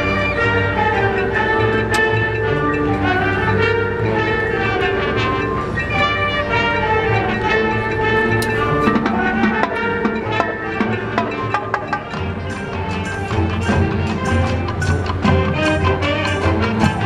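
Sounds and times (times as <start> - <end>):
brass sustained chords: 0.0 - 17.0
sharp percussion strikes: 7.2 - 17.0.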